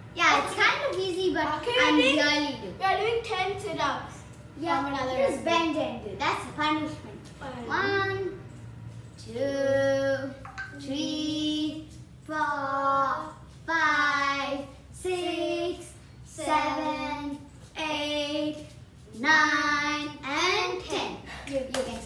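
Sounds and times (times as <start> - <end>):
girl singing unaccompanied: 9.2 - 21.2.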